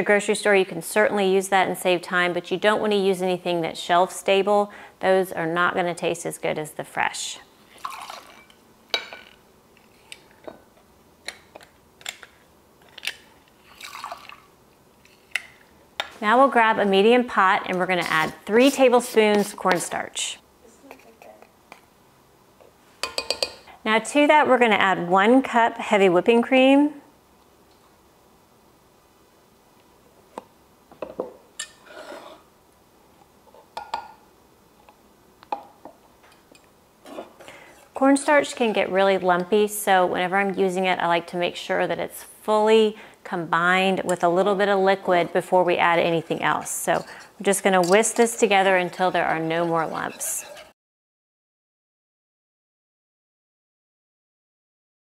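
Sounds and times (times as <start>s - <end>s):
cream pouring: 7.8s - 8.5s, 13.7s - 14.5s
glass cup and saucepan clinking: 23.0s - 23.6s.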